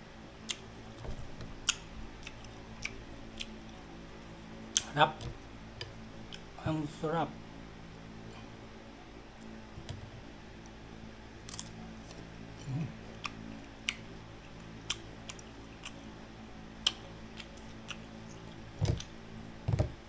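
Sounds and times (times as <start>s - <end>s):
steady low hum: 0.0s - 20.0s
crunchy fruit bitten and chewed: 0.4s - 5.0s, 11.4s - 16.2s, 16.8s - 19.2s.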